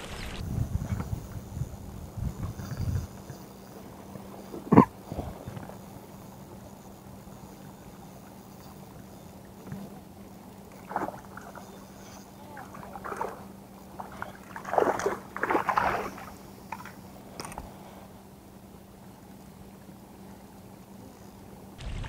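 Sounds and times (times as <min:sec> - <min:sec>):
fish splashing at the surface: 0:14.0 - 0:16.9, 0:21.8 - 0:22.0.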